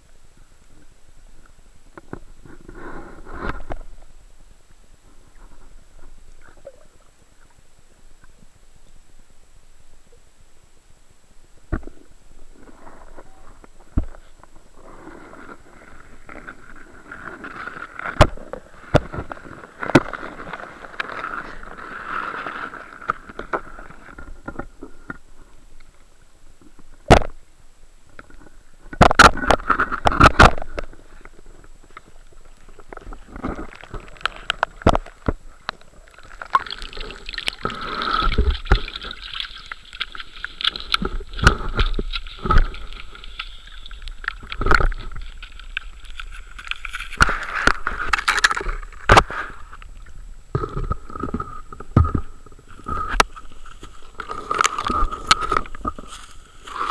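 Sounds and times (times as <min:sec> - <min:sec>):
water gurgling and sloshing: 0:11.6 - 0:27.4, 0:28.1 - 0:56.9.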